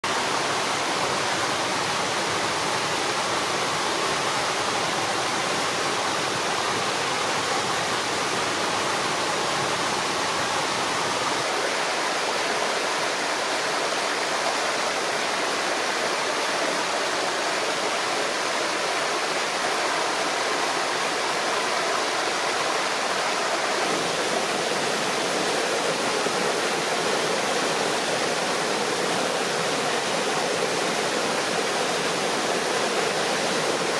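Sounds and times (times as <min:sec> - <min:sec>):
stream water rushing over rocks: 0:00.0 - 0:33.9.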